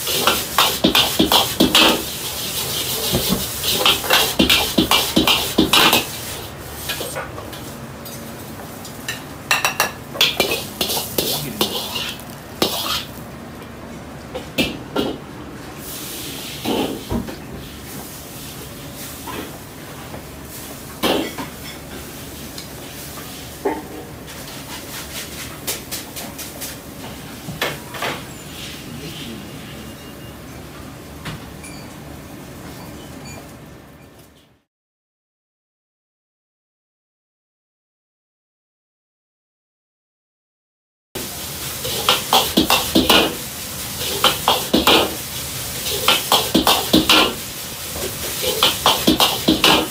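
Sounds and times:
dishes and utensils clattering: 0.0 - 6.1, 9.1 - 13.2, 21.0 - 21.9, 41.8 - 43.4, 44.0 - 45.2, 45.8 - 47.4, 48.0 - 49.9
ladle scraping wok: 0.0 - 7.8, 10.2 - 13.2, 41.2 - 49.9
sizzling hiss: 0.0 - 7.8, 10.2 - 13.2, 41.2 - 49.9.

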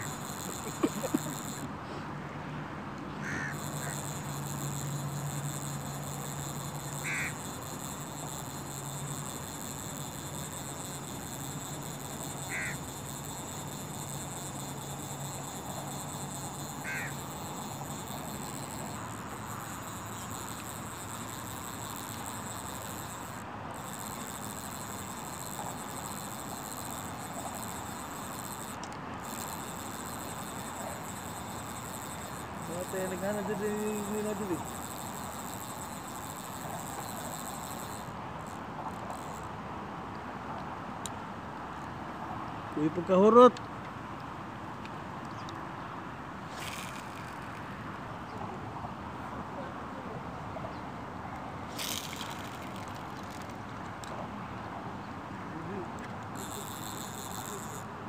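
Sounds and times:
bird calls: 6.8 - 7.4, 12.4 - 12.8, 16.8 - 17.2.

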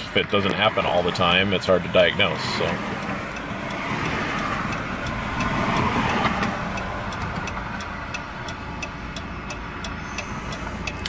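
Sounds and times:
vehicle noise: 0.0 - 11.0
hazard light flasher ticking: 2.9 - 11.0.

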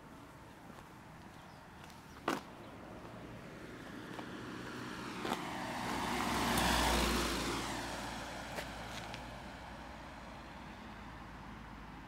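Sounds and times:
car driving past: 4.2 - 9.6.

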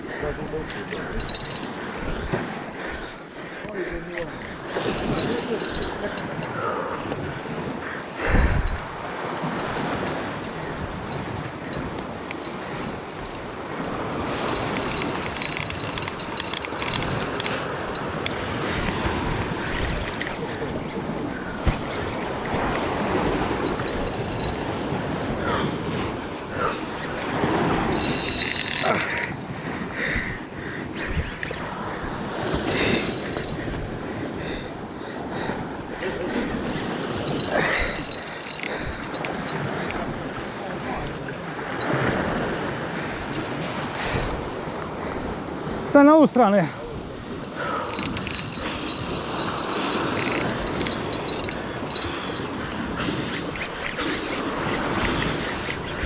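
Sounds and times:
wind: 0.0 - 56.0
fishing reel clicking: 0.7 - 2.3, 3.0 - 7.2, 9.5 - 20.4, 22.4 - 25.0, 27.0 - 29.4, 32.5 - 33.8, 36.6 - 40.1, 41.8 - 42.2, 43.1 - 44.4, 47.4 - 56.0.

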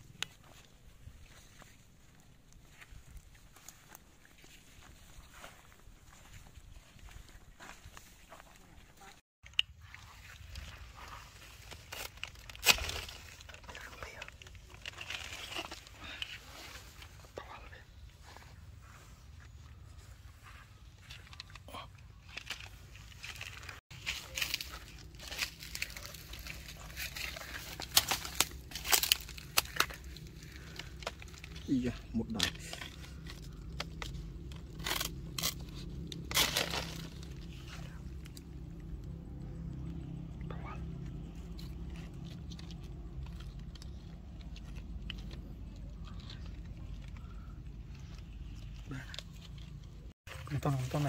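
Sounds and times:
dry leaves rustling: 9.7 - 21.6, 22.2 - 51.0
low rumble: 9.9 - 50.1.

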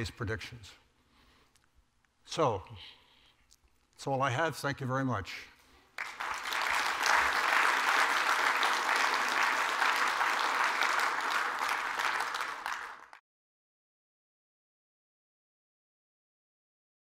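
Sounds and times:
audience applauding: 6.0 - 13.2.

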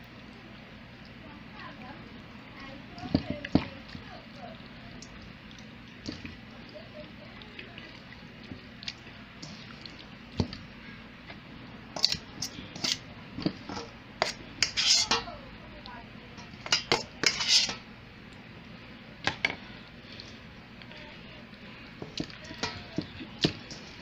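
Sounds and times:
meat clattering in metal bowl: 12.0 - 15.3, 16.4 - 17.8, 22.0 - 24.0.

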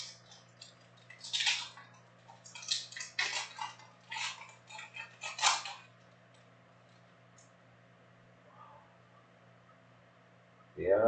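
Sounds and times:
foil wrapper tearing and crinkling: 0.0 - 6.1.

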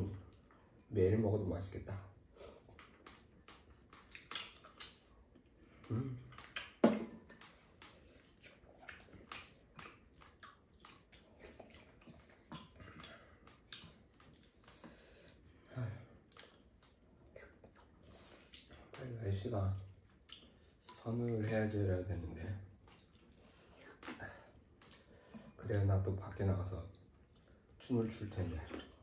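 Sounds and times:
chewing and mouth sounds: 2.4 - 21.7, 22.7 - 25.6, 26.9 - 29.0.

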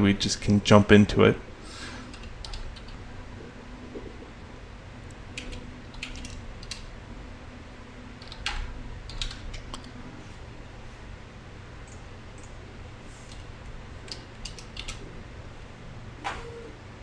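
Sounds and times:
low steady hum: 0.0 - 17.0
keyboard keystrokes: 14.1 - 15.0.

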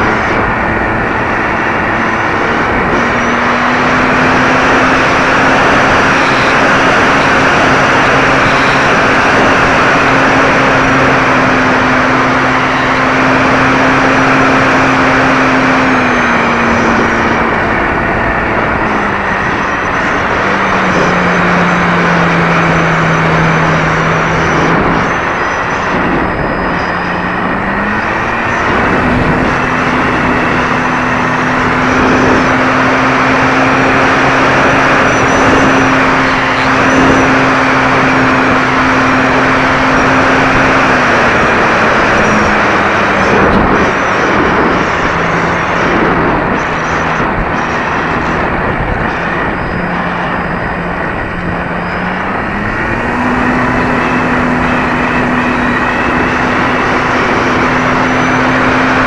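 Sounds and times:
model plane motor running: 0.0 - 59.0
wind rushing over camera: 0.0 - 59.0.

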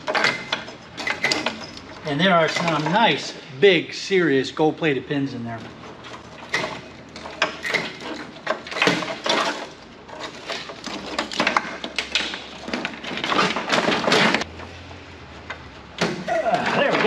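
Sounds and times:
cable connectors clacking and rattling: 0.0 - 3.4, 5.5 - 14.6.

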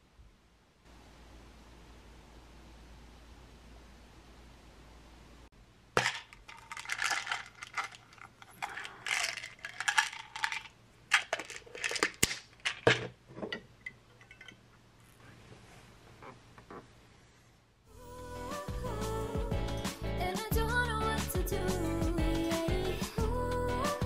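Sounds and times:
plastic bottle rattling: 6.0 - 13.2.

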